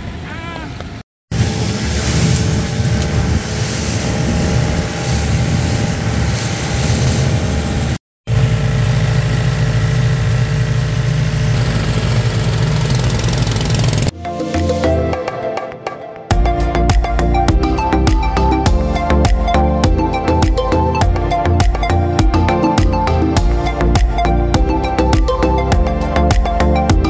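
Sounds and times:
boat engine droning: 0:00.0 - 0:14.1
rushing water hiss: 0:01.4 - 0:07.6.

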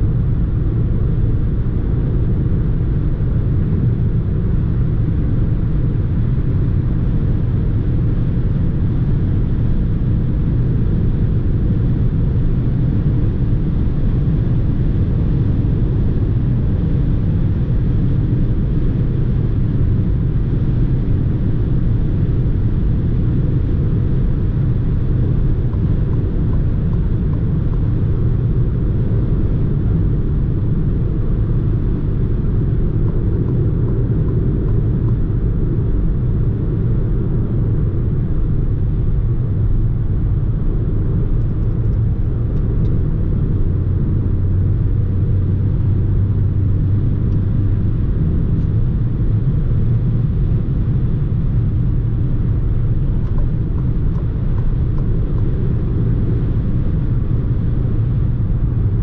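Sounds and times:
car interior road rumble: 0:00.0 - 0:59.0.

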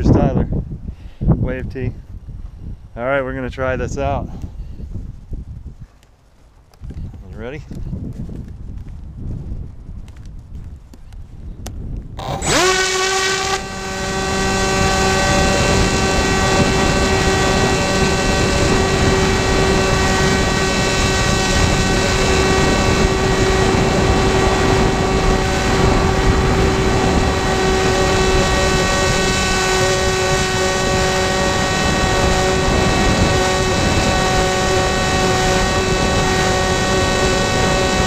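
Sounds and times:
wind rush on microphone: 0:00.0 - 0:38.0
model airplane motor whining: 0:12.2 - 0:38.0.

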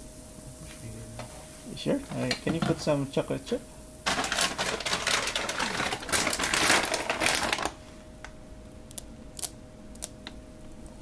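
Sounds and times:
plastic bag crinkling: 0:04.0 - 0:07.9.

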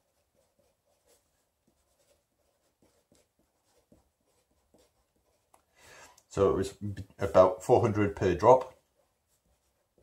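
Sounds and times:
pen scratching on paper: 0:00.0 - 0:05.7, 0:08.6 - 0:10.0.

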